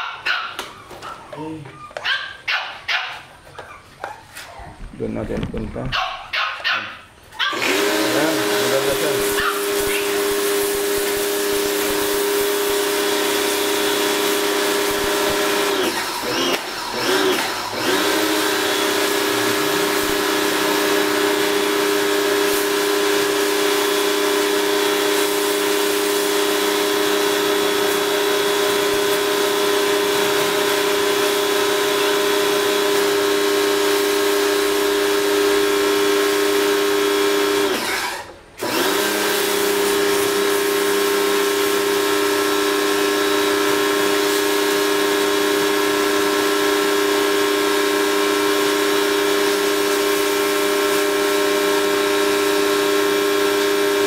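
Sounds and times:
pressure washer motor hum: 7.5 - 54.0
water jet spraying: 7.6 - 30.8.

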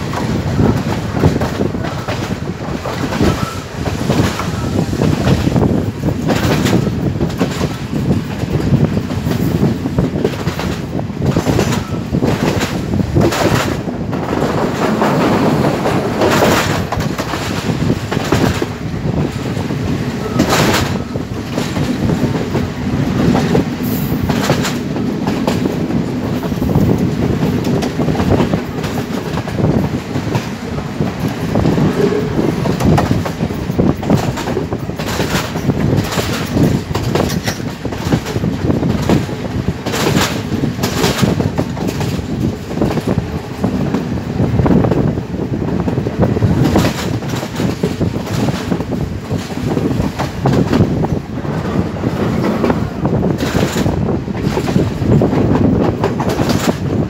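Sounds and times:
train running rumble: 0.0 - 57.0
wheels clacking over rail joints: 0.0 - 57.0.

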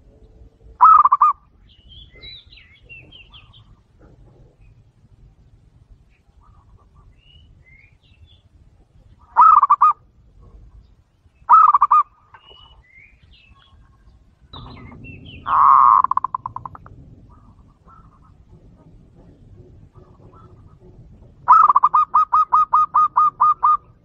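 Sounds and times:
dove cooing: 0.0 - 5.1, 9.2 - 10.8, 11.5 - 12.8, 13.7 - 24.0
faint high bird chirps: 10.7 - 16.8.

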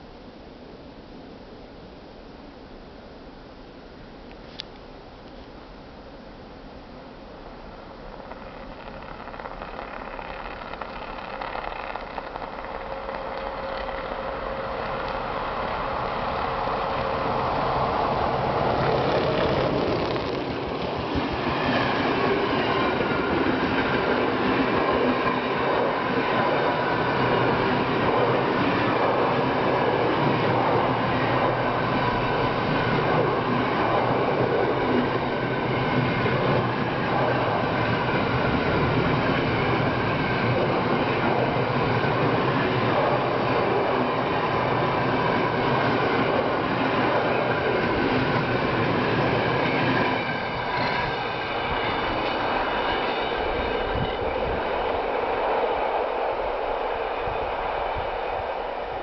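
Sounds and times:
train wheels rumbling on rails: 7.7 - 59.0
faint high ringing tone: 47.5 - 54.6.

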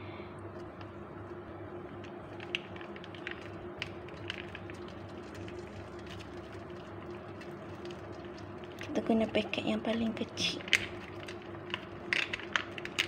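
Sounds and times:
steady low hum: 0.0 - 13.0
paste crackling in hot oil: 0.6 - 13.0.

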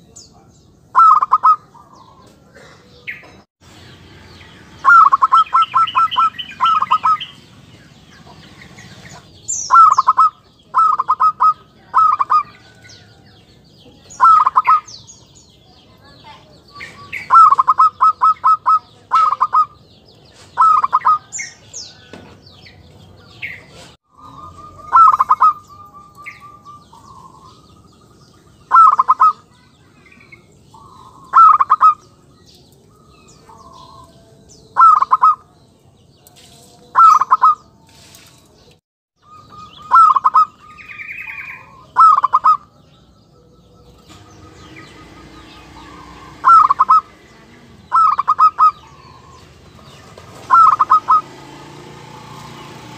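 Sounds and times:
dove cooing: 0.9 - 3.4, 4.8 - 7.4, 8.3 - 12.8, 14.0 - 14.9, 16.9 - 19.8, 20.4 - 21.4, 24.1 - 29.6, 30.8 - 32.2, 32.9 - 35.5, 37.0 - 37.6, 39.2 - 42.8, 43.7 - 51.4
soft bird trill: 0.9 - 7.4, 8.2 - 52.9.

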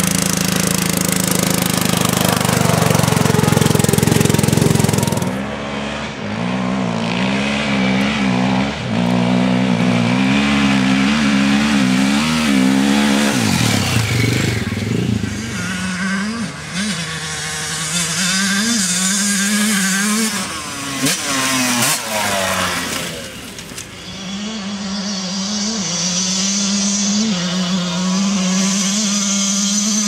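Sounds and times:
lawn mower engine running: 0.0 - 5.9, 6.9 - 26.6
motorcycle engine revving: 0.0 - 30.0.

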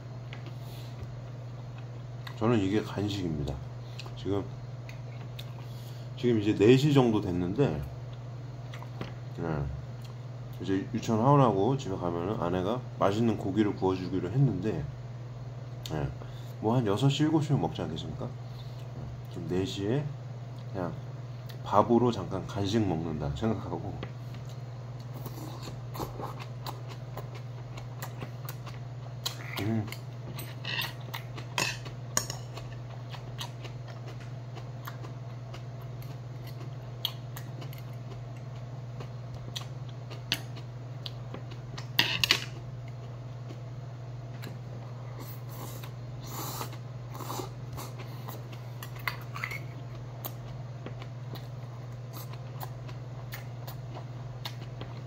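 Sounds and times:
steady low hum: 0.0 - 55.0
chewing: 24.3 - 43.7, 44.3 - 55.0.

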